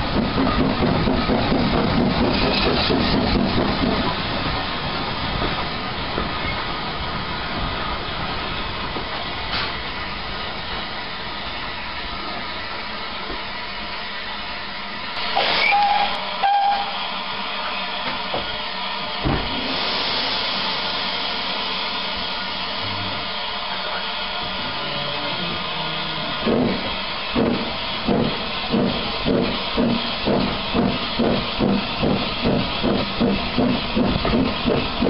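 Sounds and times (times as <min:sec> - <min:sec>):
steam locomotive hissing: 0:00.0 - 0:35.0
steam whistle toots: 0:15.3 - 0:17.1
thump: 0:19.2 - 0:19.6.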